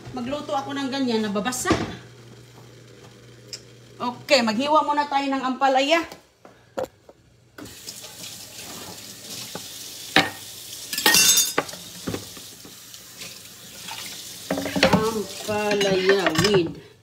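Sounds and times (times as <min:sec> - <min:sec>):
tap running into sink: 0:07.6 - 0:10.4, 0:11.6 - 0:12.8
kitchenware knocking and clattering: 0:11.0 - 0:12.3, 0:14.5 - 0:16.8.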